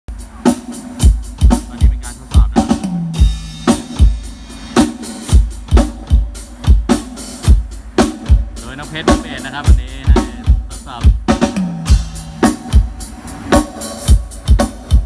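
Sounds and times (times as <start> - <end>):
cymbal crash: 0.1 - 15.0
kick and snare drum strokes: 0.1 - 15.0.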